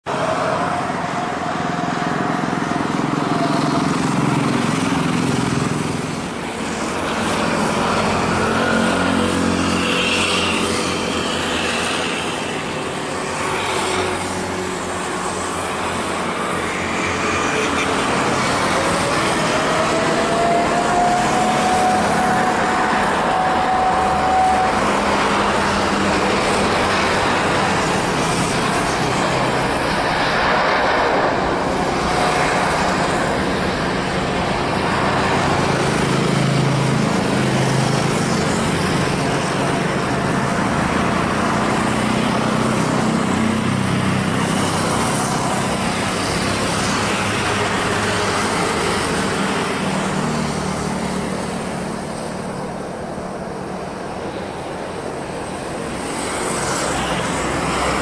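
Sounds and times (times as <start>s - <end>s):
road traffic: 0.0s - 58.0s
jet aircraft taxiing: 0.1s - 58.0s
whining tone: 18.8s - 25.6s.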